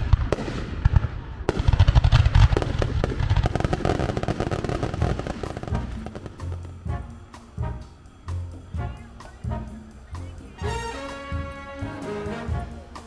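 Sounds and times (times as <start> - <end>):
fireworks popping and crackling: 0.0 - 7.0
fireworks booming: 0.0 - 8.3.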